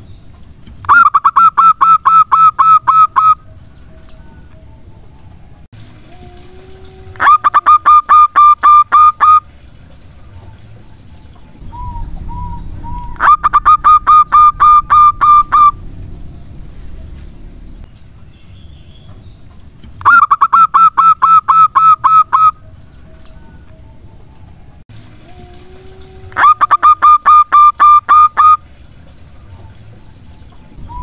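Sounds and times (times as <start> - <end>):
dove cooing: 0.9 - 3.5, 11.6 - 15.9, 25.3 - 28.6.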